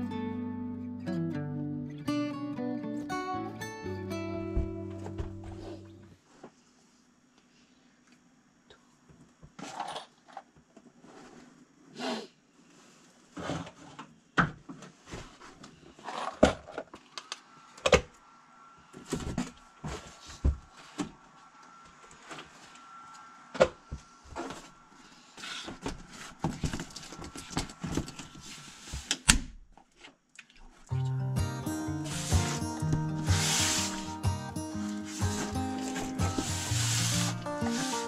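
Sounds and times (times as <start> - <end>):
faint steady high tone: 17.5 - 25.3.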